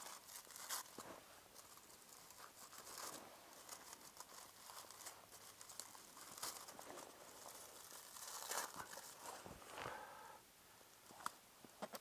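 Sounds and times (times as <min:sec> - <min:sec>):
aluminium foil crinkling: 0:00.0 - 0:09.4.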